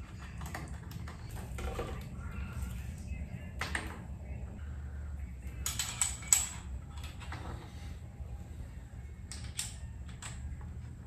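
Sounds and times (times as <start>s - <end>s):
low steady hum: 0.0s - 11.0s
bicycle parts clicking: 9.2s - 10.4s.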